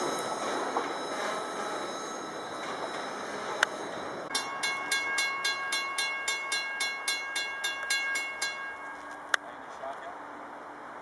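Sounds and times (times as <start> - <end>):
crossing warning bell ringing: 0.0 - 9.4
freight cars rolling on rails: 0.0 - 11.0.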